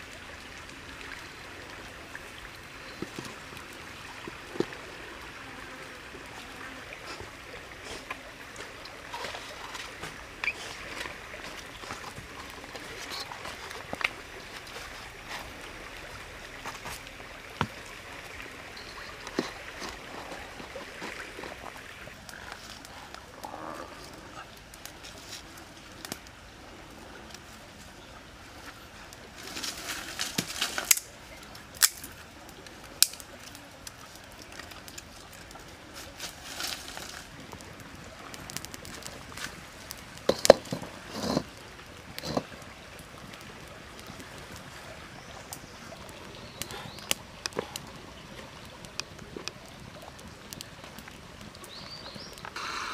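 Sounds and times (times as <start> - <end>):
rustling: 35.9 - 37.4.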